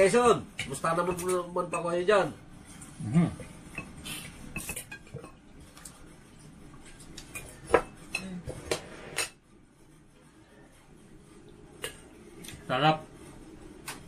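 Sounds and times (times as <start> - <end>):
plates and cutlery clinking: 3.7 - 5.4.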